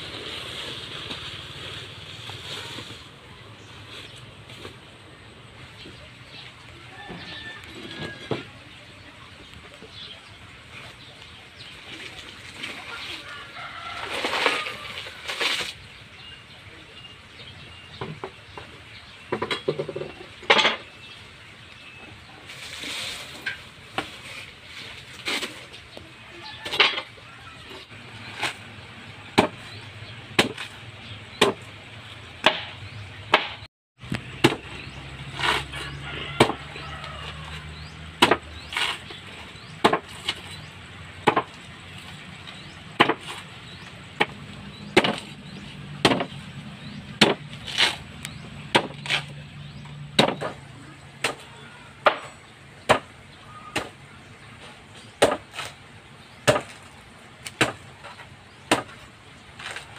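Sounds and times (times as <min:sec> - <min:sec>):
blade chopping banana trunk: 0:29.3 - 0:31.8, 0:32.4 - 0:54.0, 0:54.6 - 0:59.9.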